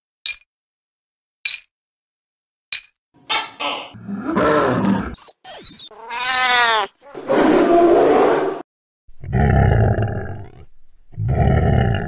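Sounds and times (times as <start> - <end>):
deep animal roars: 4.0 - 5.2, 7.1 - 8.6, 9.2 - 12.0
harsh growl: 4.0 - 5.2, 9.2 - 12.0
cat yowling: 5.9 - 8.1.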